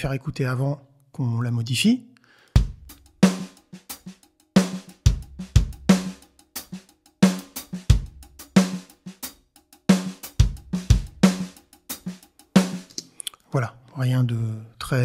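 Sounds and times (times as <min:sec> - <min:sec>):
hi-hat ticks: 0:02.5 - 0:13.4
kick drum: 0:02.6 - 0:02.9, 0:05.1 - 0:06.1, 0:07.8 - 0:08.4, 0:10.4 - 0:11.3
snare drum: 0:02.6 - 0:13.0.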